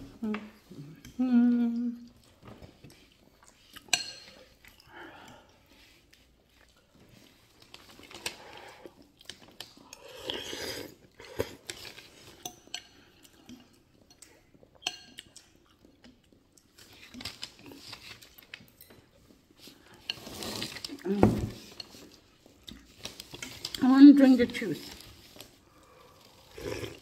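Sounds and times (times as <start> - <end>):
close chewing: 1.9 - 21.1.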